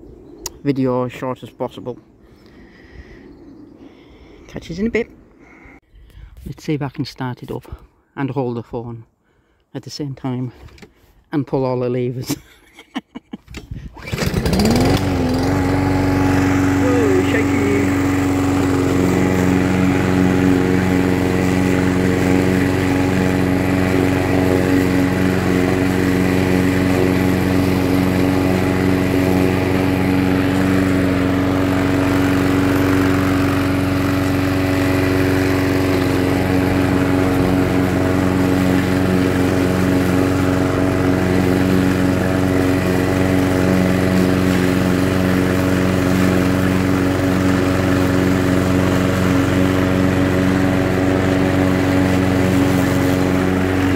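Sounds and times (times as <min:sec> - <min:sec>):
lawnmower engine running: 0:13.9 - 0:53.9.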